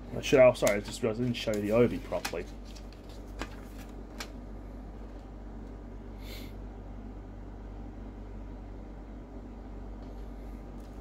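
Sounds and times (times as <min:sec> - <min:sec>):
low room hum: 0:00.0 - 0:11.0
paper rustle: 0:00.6 - 0:04.4.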